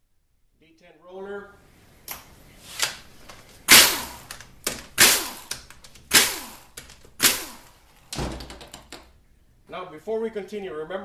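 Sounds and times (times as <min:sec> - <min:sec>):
impact wrench bursts: 0:03.7 - 0:08.0.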